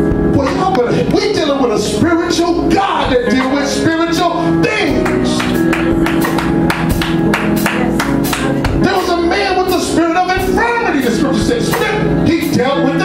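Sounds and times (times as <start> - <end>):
man's voice: 0.3 - 5.7, 8.7 - 13.0
steady drum beat: 2.0 - 13.0.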